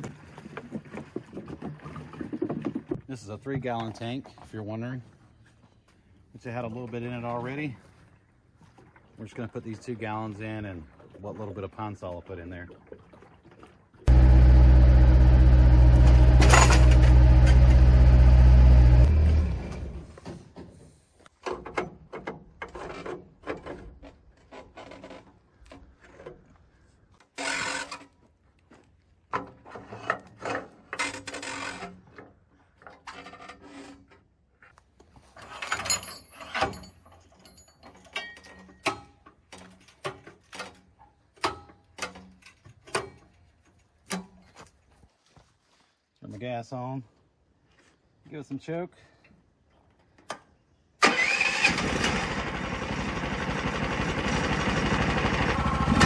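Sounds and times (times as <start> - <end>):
loader engine running: 14.1 - 20.2, 51.9 - 56.0.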